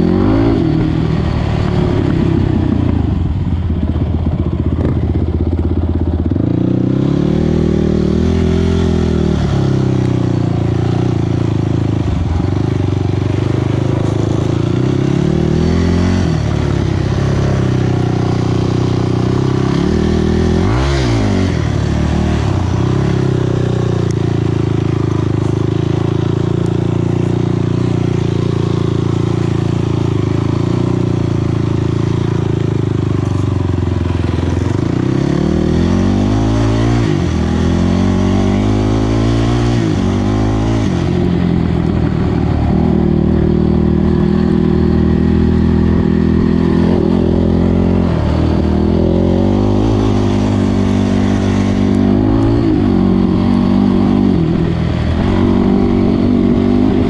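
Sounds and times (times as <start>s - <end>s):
atv engine revving: 0.0s - 57.0s.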